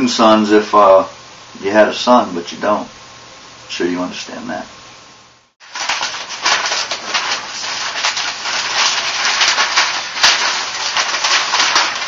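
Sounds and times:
paper crumpling: 5.6 - 12.0.

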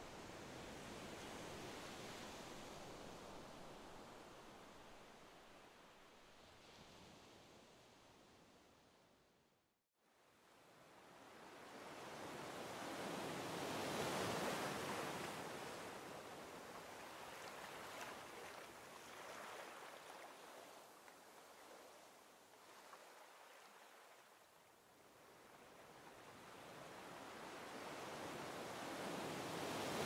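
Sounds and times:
ocean surf washing: 26.0 - 30.0.

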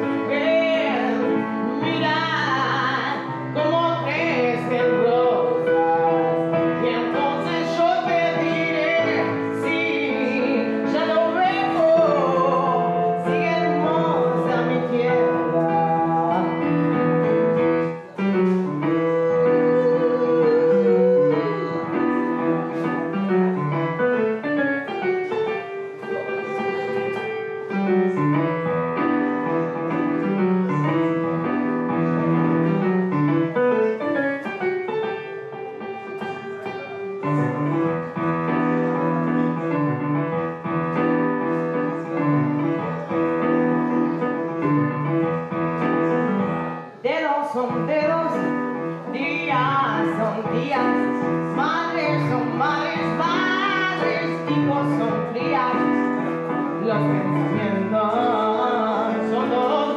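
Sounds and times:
woman singing: 0.0 - 23.1, 47.0 - 56.1, 56.7 - 59.9
keyboard playing piano chords: 0.0 - 59.9.

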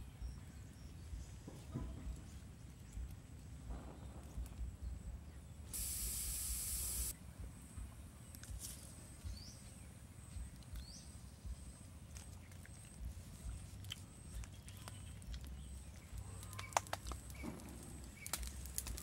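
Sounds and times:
steam hissing: 5.8 - 7.1
fire crackling: 15.2 - 19.0.

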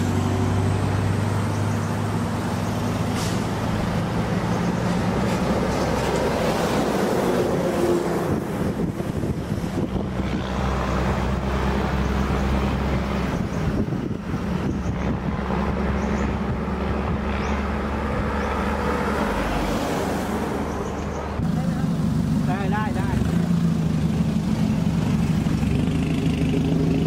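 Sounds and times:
vehicle engine running: 20.8 - 27.0.

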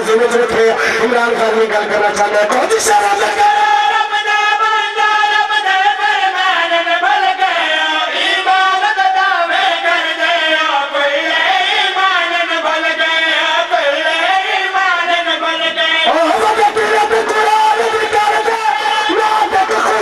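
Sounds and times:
men chanting into a microphone: 0.0 - 20.0.

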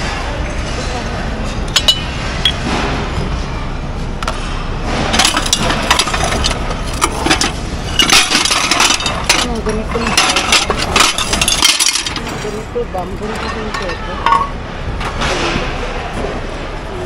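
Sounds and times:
glass and ceramic clinking: 0.5 - 2.7, 5.2 - 14.6.

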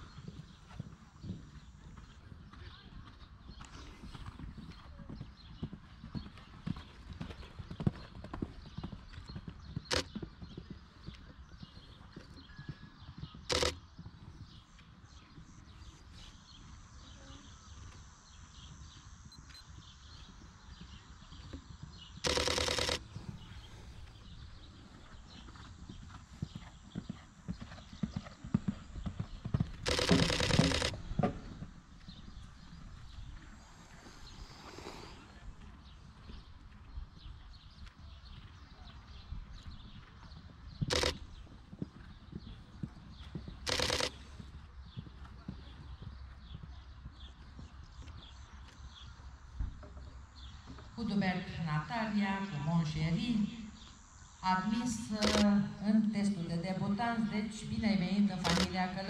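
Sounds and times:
horse hoofbeats on sand: 0.0 - 51.6
loud hissing bursts: 33.6 - 35.4.

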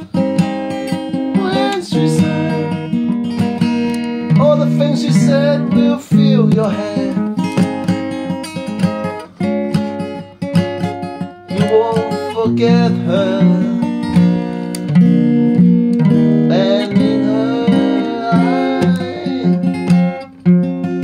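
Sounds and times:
acoustic guitar music: 0.0 - 21.0.

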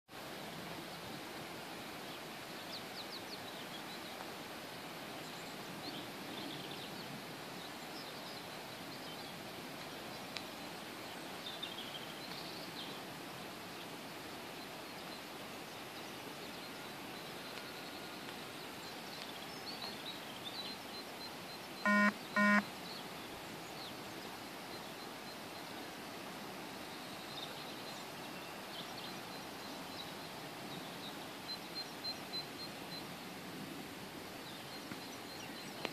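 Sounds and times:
steady outdoor hiss: 0.1 - 35.9
faint bird chirps: 15.9 - 25.8
short loud beeps: 21.9 - 22.6.

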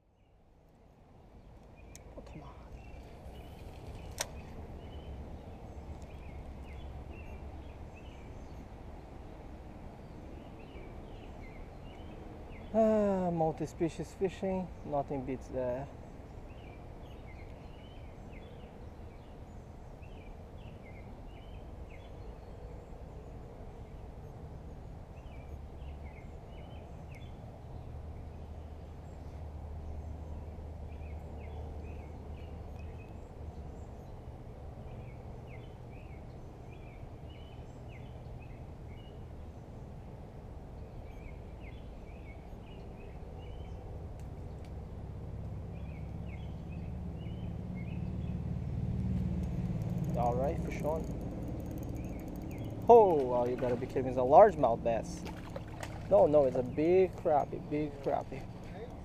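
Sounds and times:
birds chirping: 1.4 - 8.8, 10.0 - 40.0, 40.8 - 59.0
low background rumble: 14.8 - 59.0.

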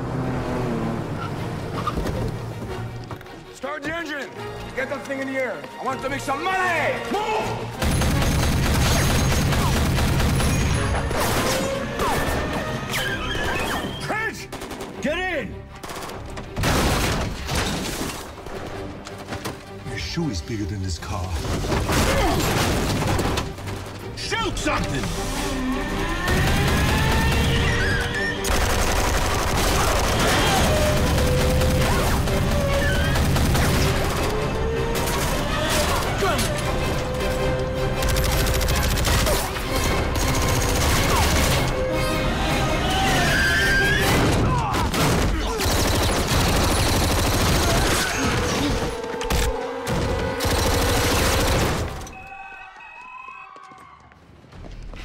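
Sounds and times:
rapid automatic gunfire: 7.8 - 11.4, 26.3 - 27.8, 28.4 - 34.4, 38.0 - 41.7, 45.0 - 48.1, 50.4 - 52.0.

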